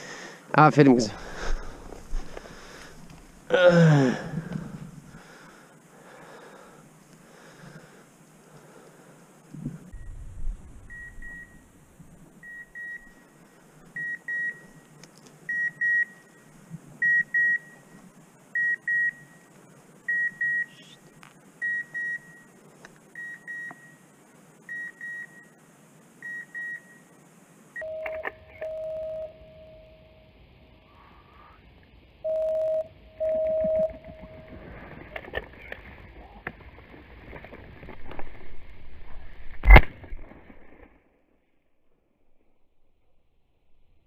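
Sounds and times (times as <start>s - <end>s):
lower long tone: 27.8s - 35.2s
high double beep: 32.3s - 34.6s.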